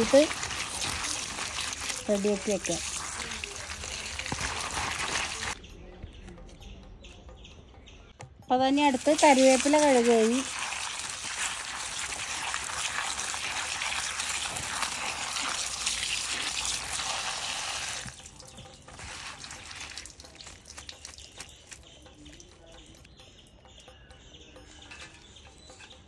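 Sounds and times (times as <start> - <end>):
water drips: 0.0 - 5.6, 8.6 - 25.9
water running and splashing: 0.0 - 5.6, 8.8 - 23.1.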